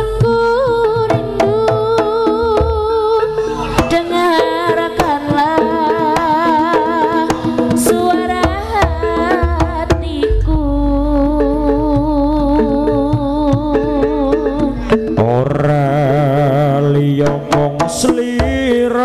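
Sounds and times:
hand drum strokes: 0.0 - 19.0
deep low boom: 10.3 - 15.2.

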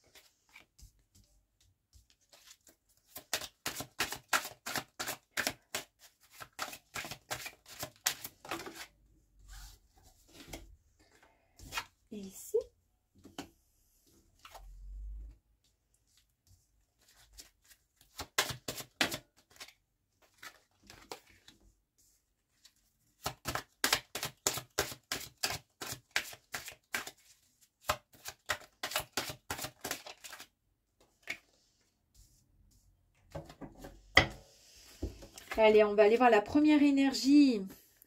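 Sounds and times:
cards slapping on tabletop: 3.1 - 8.9, 18.1 - 19.7, 23.2 - 27.2, 27.8 - 30.4.

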